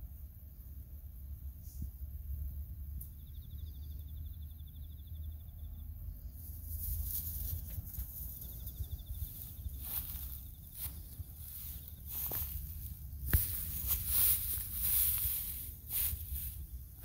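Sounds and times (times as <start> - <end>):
rustling in dry grass: 6.2 - 17.0.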